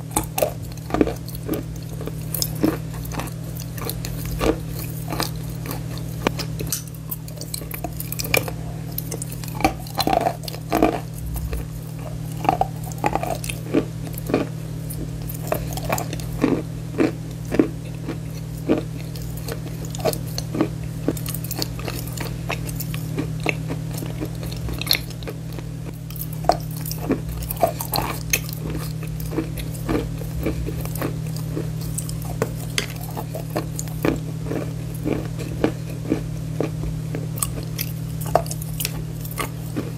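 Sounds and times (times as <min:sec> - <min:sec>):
chewing chalk crunches: 0:00.0 - 0:39.9
low hum: 0:00.0 - 0:39.9.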